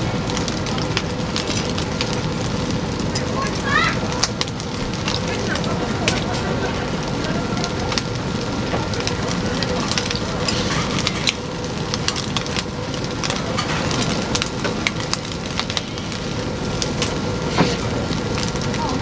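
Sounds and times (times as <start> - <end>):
fish sizzling on a grill: 0.0 - 19.0.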